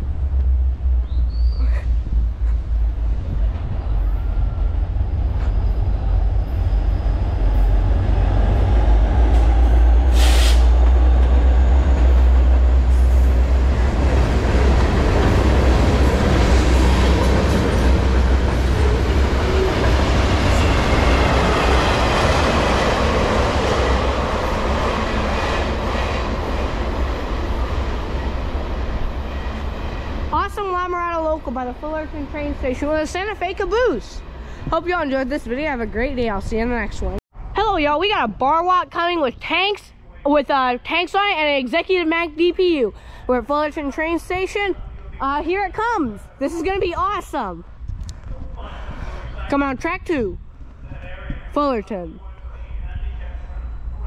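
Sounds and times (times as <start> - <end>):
diesel locomotive rumble: 0.0 - 37.2.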